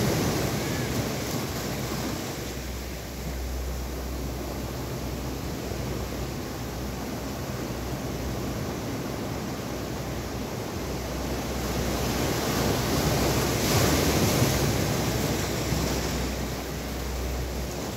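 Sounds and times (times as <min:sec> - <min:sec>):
sea waves breaking on rocks: 0:00.0 - 0:03.4, 0:07.1 - 0:17.9.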